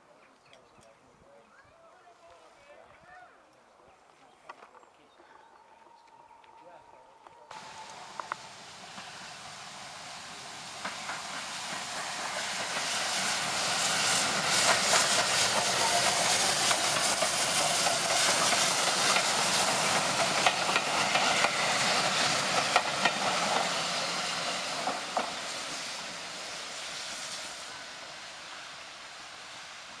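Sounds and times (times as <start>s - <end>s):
train wheels clicking: 7.5s - 28.5s
steam hiss: 7.5s - 30.0s.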